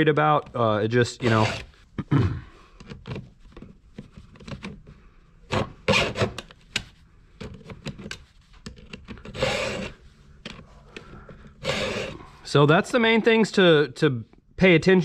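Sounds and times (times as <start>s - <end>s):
file rasping on steel: 1.2s - 1.7s, 5.9s - 6.4s, 9.4s - 10.0s, 11.6s - 12.2s.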